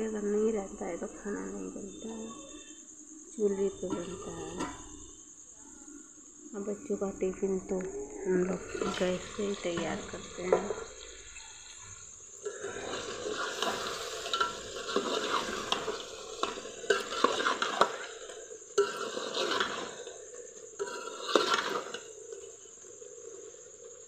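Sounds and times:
metal ladle scraping pot: 3.6s - 5.2s, 8.3s - 22.7s.

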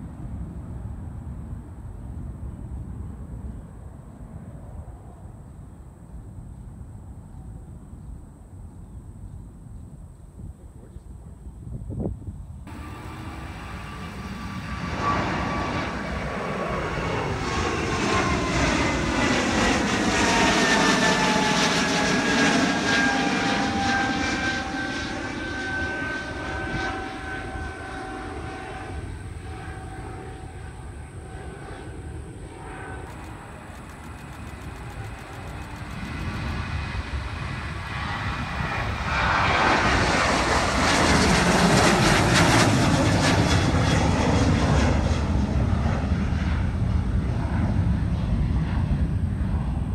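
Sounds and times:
jet airliners flying by: 12.7s - 49.9s
jet taking off: 12.7s - 49.9s.

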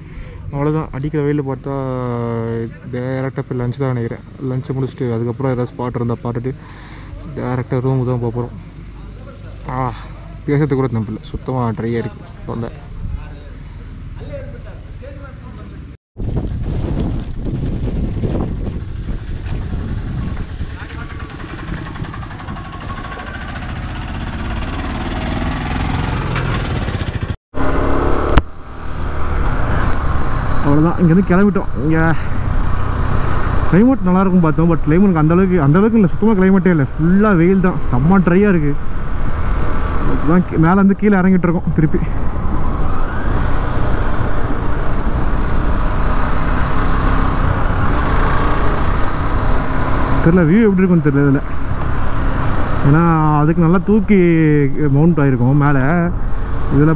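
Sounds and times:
wind rush on microphone: 16.2s - 23.1s, 41.6s - 50.2s
wind noise: 16.2s - 24.8s, 26.8s - 56.9s
motorcycle engine running: 17.5s - 28.8s.

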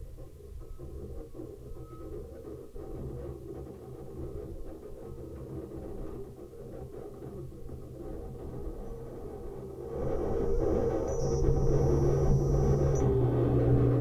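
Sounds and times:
low rumbling synthesizer drone: 9.7s - 14.0s.

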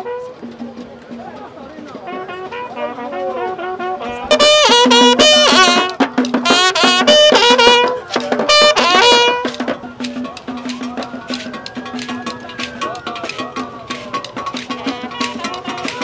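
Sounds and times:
brass horn blown: 0.0s - 0.4s, 2.1s - 9.7s.

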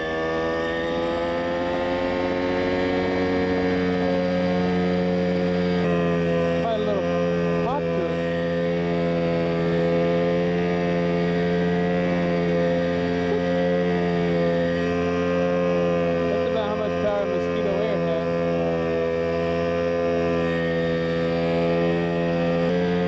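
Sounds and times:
helicopter engine and rotor: 7.6s - 8.5s.

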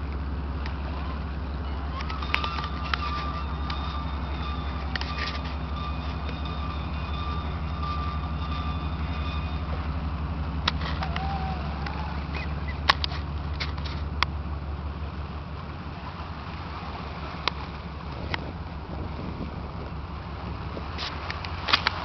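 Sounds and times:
ferry diesel engines droning: 0.0s - 22.0s
faint thin whine: 0.8s - 14.0s.

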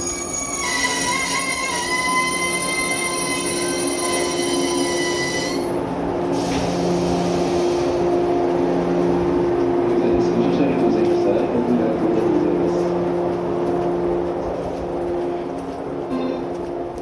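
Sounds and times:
train brakes squealing: 0.0s - 5.8s
low hum of standing train: 0.0s - 17.0s.

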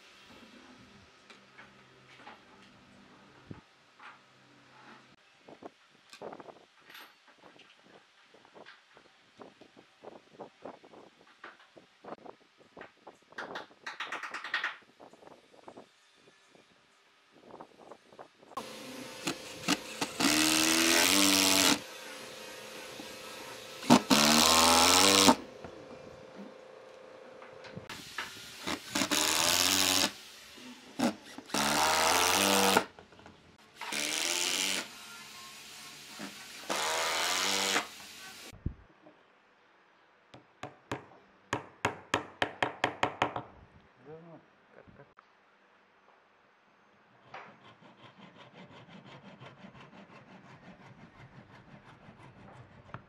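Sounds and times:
cordless drill driving screws: 19.2s - 21.9s, 22.8s - 25.5s, 28.6s - 30.2s, 31.0s - 32.9s, 33.8s - 35.0s, 36.1s - 38.1s.

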